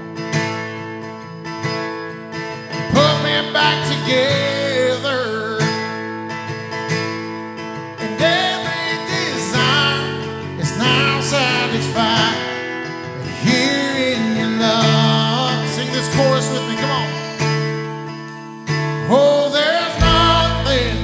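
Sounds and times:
strummed acoustic guitar: 0.0s - 21.0s
man singing lead: 2.8s - 6.0s, 8.0s - 17.7s, 19.0s - 21.0s
electric bass: 20.0s - 21.0s.

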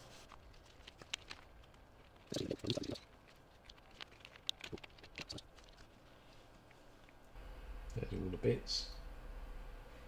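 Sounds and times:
small parts clicking and rustling: 0.2s - 6.0s.

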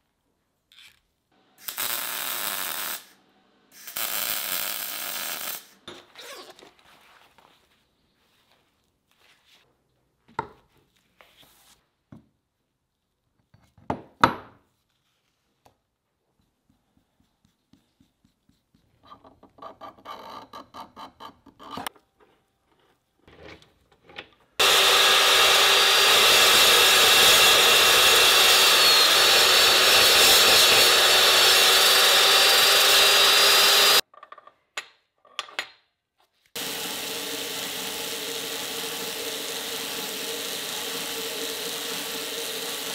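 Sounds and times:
belt grinder running: 24.6s - 34.0s, 36.6s - 42.9s
chop saw cutting: 24.6s - 34.0s, 36.6s - 42.9s.

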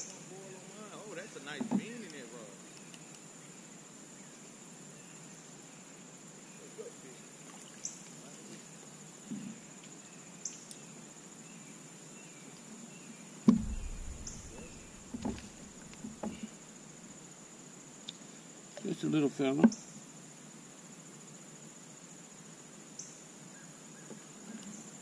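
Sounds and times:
knocks on plastic kayak: 1.6s - 1.9s, 13.5s - 16.5s.

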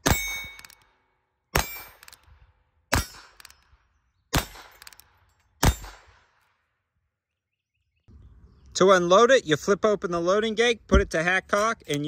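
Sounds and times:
revolver cocking: 0.0s - 1.0s, 1.6s - 6.4s.

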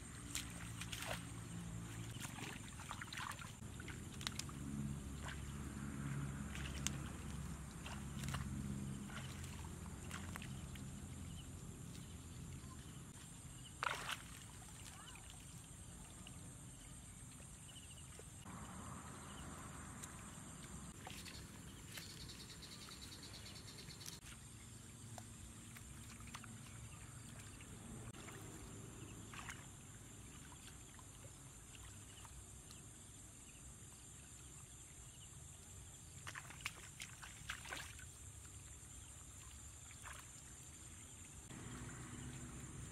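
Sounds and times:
shallow water sloshing: 0.0s - 18.6s.

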